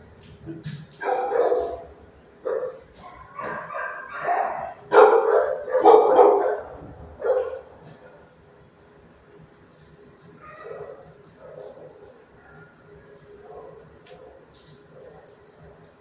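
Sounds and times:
dogs barking: 0.9s - 8.3s, 10.4s - 12.6s.

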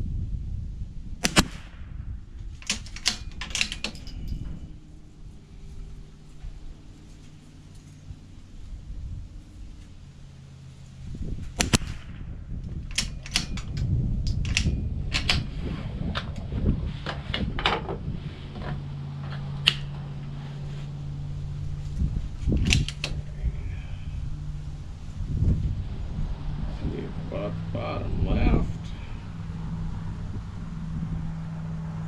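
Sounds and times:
gunshots: 1.2s - 2.1s, 11.6s - 12.3s.

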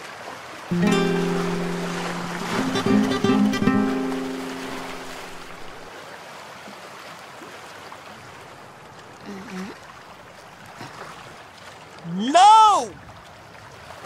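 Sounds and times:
flowing water: 0.0s - 14.0s
guitar music: 0.7s - 5.9s.

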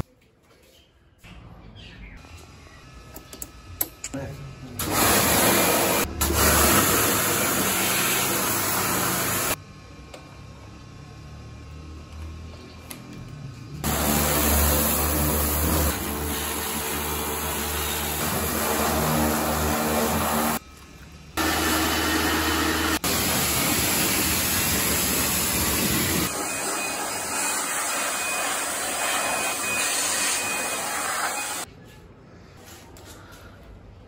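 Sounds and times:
electric blower rushing air: 4.8s - 9.6s, 13.8s - 20.6s, 21.4s - 31.7s
pressure washer spraying: 4.8s - 9.6s, 13.8s - 20.6s, 21.4s - 31.7s.

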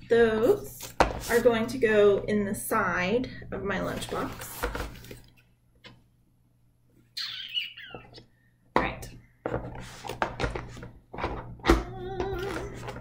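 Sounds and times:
rustling and knocking of containers: 0.8s - 2.3s, 8.0s - 13.0s.

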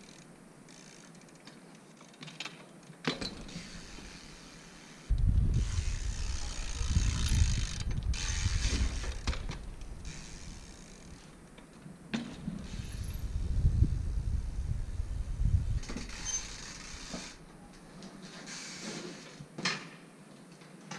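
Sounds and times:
bike drivetrain clicking and rattling: 0.0s - 14.0s, 15.6s - 20.9s.

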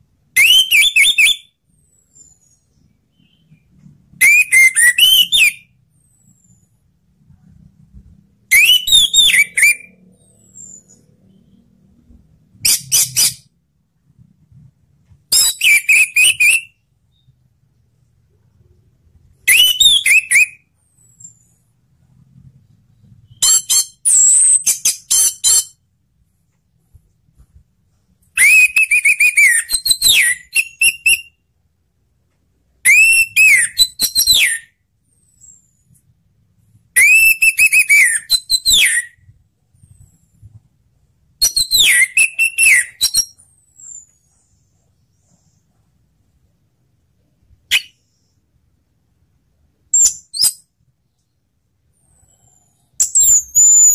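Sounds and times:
thrush singing whistled phrases: 0.3s - 5.8s, 8.5s - 11.6s, 15.3s - 17.3s, 19.4s - 20.7s, 28.4s - 31.4s, 32.8s - 34.8s, 37.0s - 39.3s, 41.4s - 44.1s, 47.7s - 48.4s.

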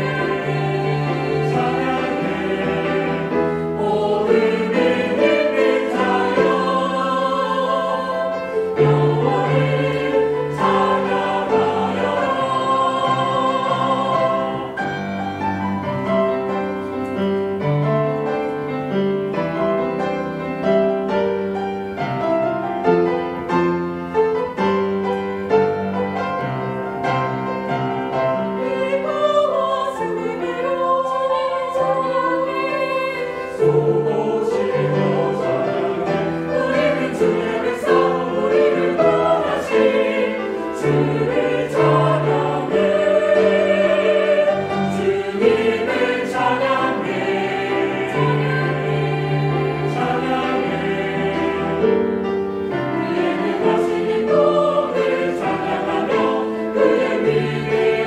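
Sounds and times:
choir singing in harmony: 0.0s - 58.0s
piano accompaniment: 0.0s - 58.0s.

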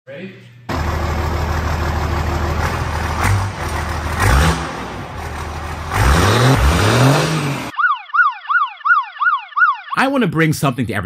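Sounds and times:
diesel engine idling and revving: 0.7s - 7.7s.

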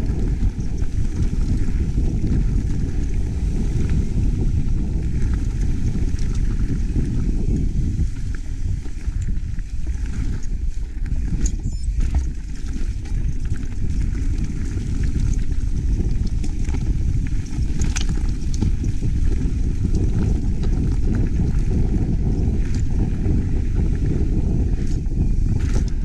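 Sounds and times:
mountain bike rolling on dirt: 0.0s - 26.0s
wind buffeting microphone: 0.0s - 26.0s
clicks and rattles: 15.1s - 18.8s.

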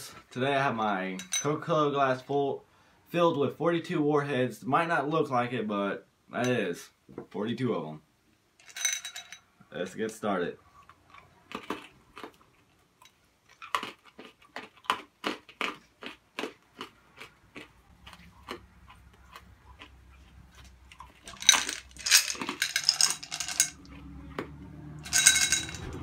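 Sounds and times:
candy crackling: 13.4s - 24.0s.

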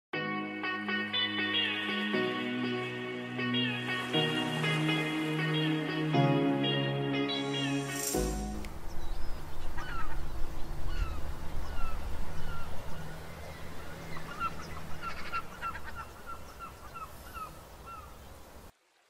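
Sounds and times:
birds calling: 8.8s - 18.6s.

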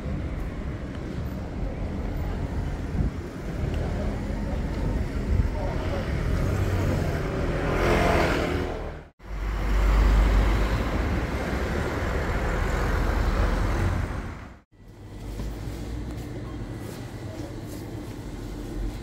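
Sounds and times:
cars passing: 0.0s - 14.6s
low traffic rumble: 0.0s - 19.0s.

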